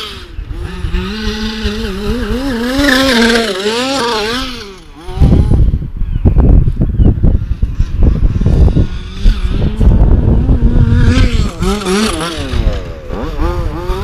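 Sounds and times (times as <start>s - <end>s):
two-stroke engine revving: 0.0s - 6.0s, 7.1s - 14.0s
low rumble on microphone: 4.4s - 14.0s.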